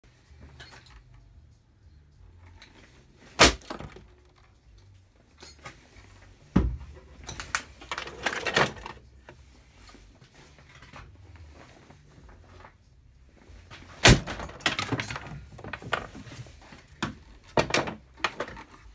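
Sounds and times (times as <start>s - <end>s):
broken pieces clattering: 13.8s - 16.2s.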